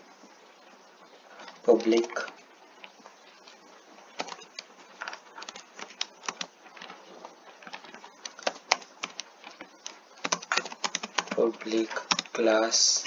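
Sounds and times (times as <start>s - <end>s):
computer keyboard typing: 4.2s - 12.4s.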